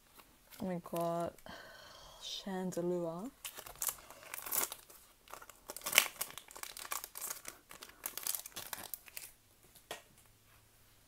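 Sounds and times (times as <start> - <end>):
foil pack crinkling and tearing: 3.4 - 9.4.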